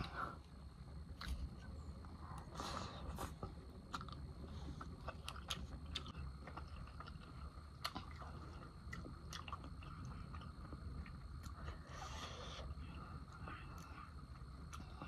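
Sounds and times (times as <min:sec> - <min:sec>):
person chewing noodles: 0:02.3 - 0:15.0.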